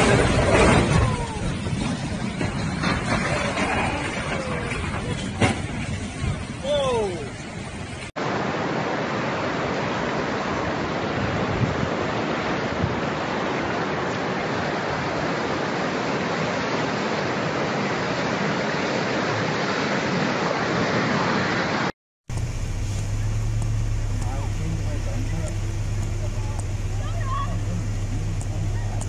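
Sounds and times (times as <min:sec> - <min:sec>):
water rushing: 0:00.0 - 0:29.0
low steady hum: 0:22.3 - 0:29.0.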